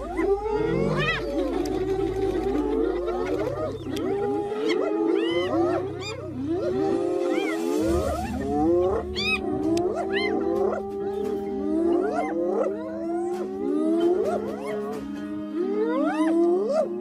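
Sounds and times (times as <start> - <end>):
hyenas calling: 0.0 - 17.0.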